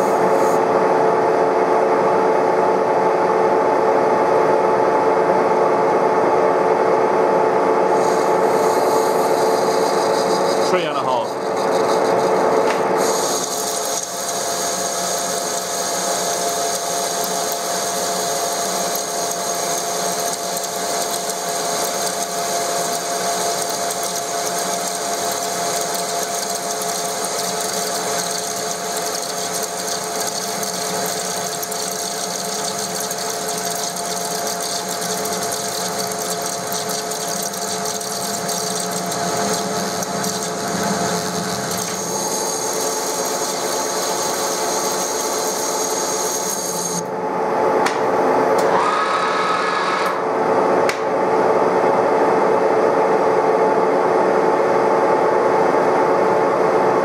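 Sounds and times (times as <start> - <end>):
machine whine: 3.6 - 52.2
lathe cutting steel: 8.0 - 47.0.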